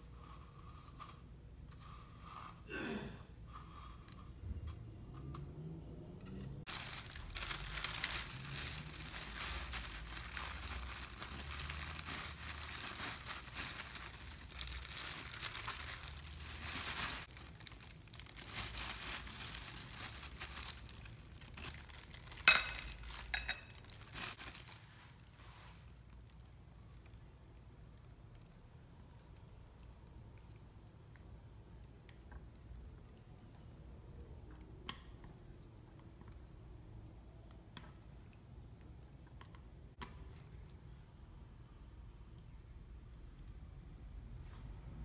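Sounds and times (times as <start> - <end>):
plastic crinkling and rustling: 6.6 - 28.4.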